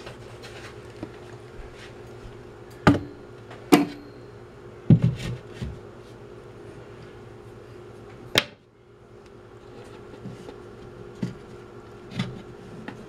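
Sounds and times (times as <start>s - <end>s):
shelf board thumping: 2.9s - 3.1s.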